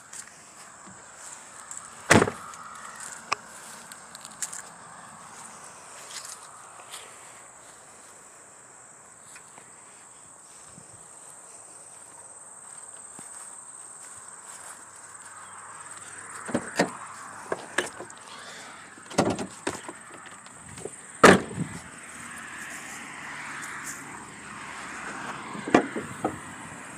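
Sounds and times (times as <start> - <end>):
footsteps in dry grass: 0.0 - 26.9
high insect drone: 0.0 - 26.9.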